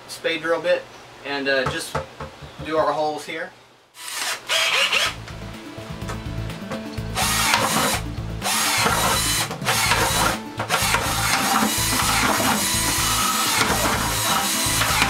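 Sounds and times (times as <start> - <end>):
cordless drill boring through plastic: 4.0 - 5.2, 7.2 - 15.0.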